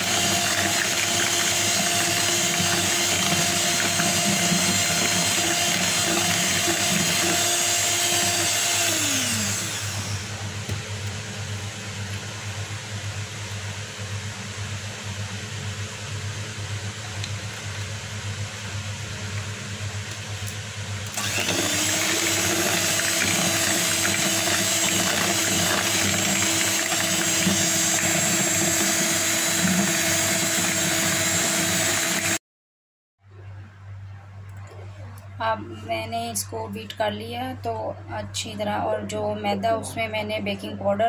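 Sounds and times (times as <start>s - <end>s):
electric hand mixer whining: 0.0s - 10.9s, 21.0s - 32.4s.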